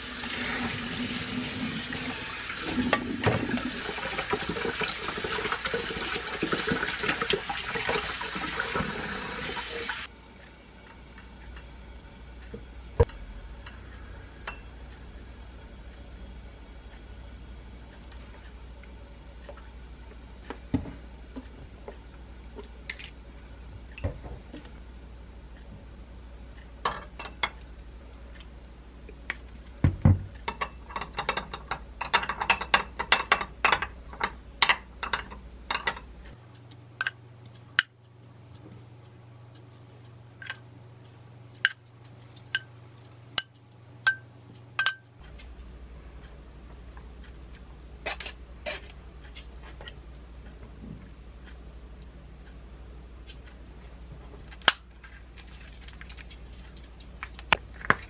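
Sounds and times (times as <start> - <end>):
metal spoon clinking glass bowl: 44.8 - 45.0.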